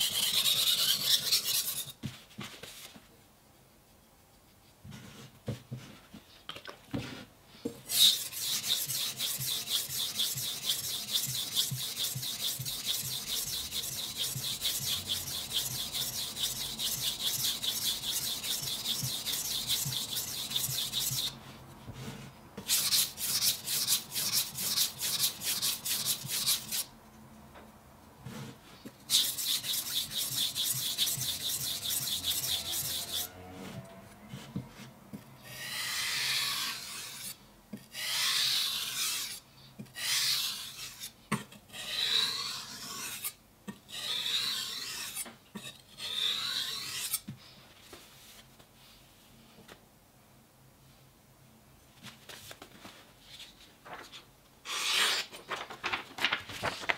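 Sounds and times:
knife grinding on whetstone: 7.9 - 21.3, 29.1 - 33.4, 43.9 - 47.2.

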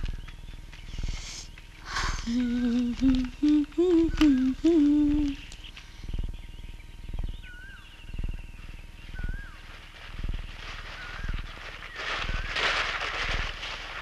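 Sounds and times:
person humming: 1.9 - 5.6.

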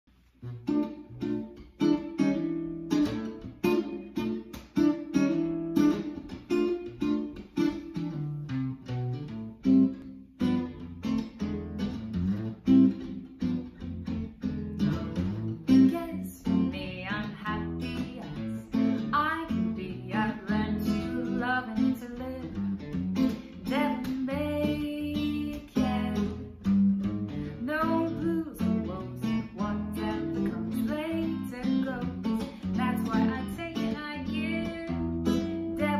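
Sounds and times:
jazz guitar chords: 0.2 - 35.9
woman singing: 15.7 - 22.8, 23.6 - 26.7, 27.5 - 35.9.

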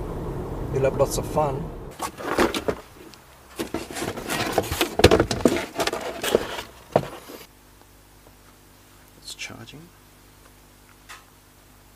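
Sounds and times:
cardboard box being opened: 2.0 - 7.5.

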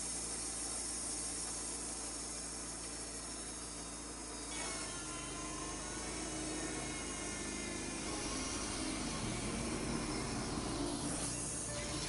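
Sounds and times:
bandsaw sawmill cutting wood: 4.3 - 12.0.

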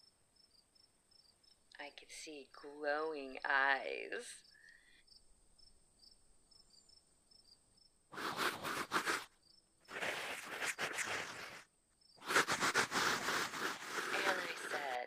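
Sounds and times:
crickets chirping: 0.0 - 1.8, 4.4 - 15.0
raccoon hissing: 8.2 - 9.3, 9.9 - 11.6, 12.2 - 15.0.

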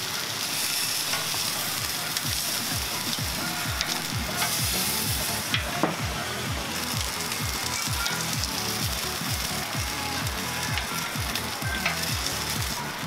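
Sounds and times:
meat sizzling on a grill: 0.0 - 13.0
background music beat: 1.0 - 13.0.

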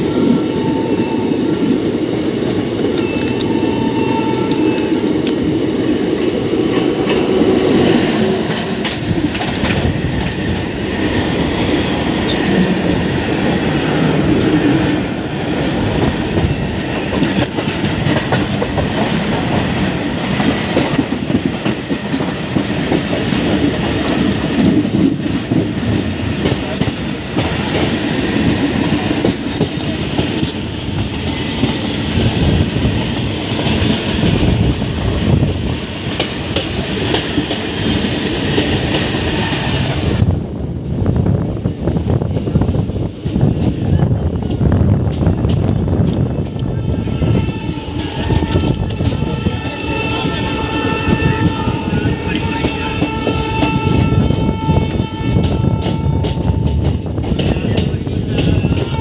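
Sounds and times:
train horn: 0.0 - 1.7, 3.0 - 5.1, 46.6 - 57.8, 58.4 - 59.0
train wheels clattering on rails: 0.0 - 59.0.

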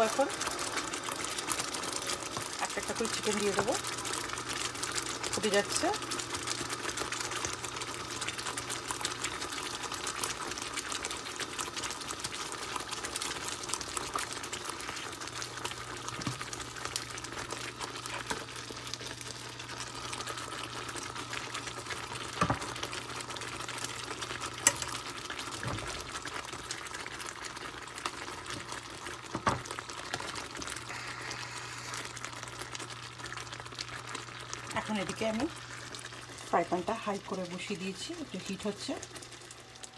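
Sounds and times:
gravy bubbling in a pan: 0.0 - 39.9
crackling hiss: 30.6 - 33.0.

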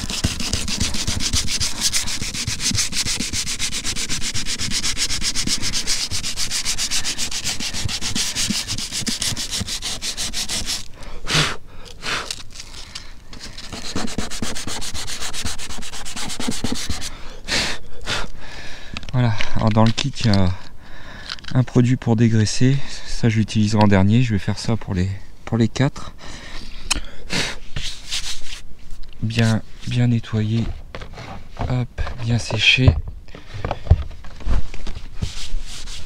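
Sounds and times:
sandpaper rubbing: 0.0 - 10.9, 13.4 - 17.1, 27.7 - 28.6, 35.2 - 36.0.

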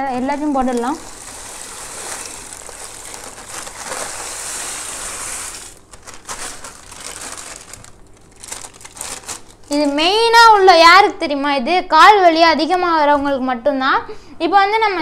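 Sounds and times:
plastic packet crinkling: 0.0 - 10.3
rock salt pouring into water: 0.2 - 9.7.

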